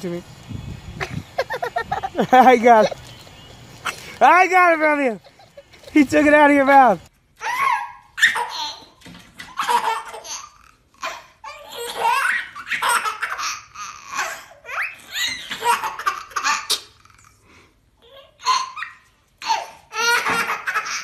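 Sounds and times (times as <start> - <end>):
baby laughing: 1.0 - 3.0, 7.4 - 17.4, 18.0 - 21.0.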